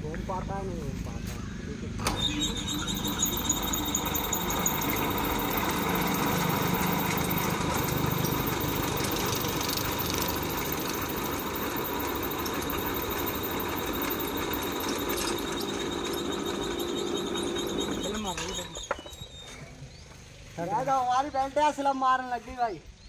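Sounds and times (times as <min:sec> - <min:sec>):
electric motor running with whine: 0:02.2 - 0:19.3.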